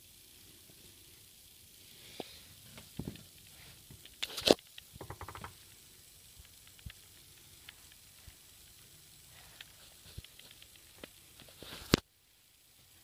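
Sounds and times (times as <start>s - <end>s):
crackling rustle: 0.0s - 5.0s, 5.6s - 13.0s
small ticks: 0.0s - 12.8s.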